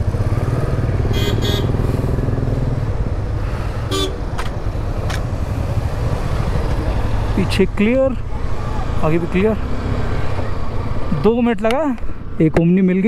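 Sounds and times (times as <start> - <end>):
motorcycle engine running: 0.0 - 7.4
horn beeps: 1.1 - 1.8, 3.9 - 4.2.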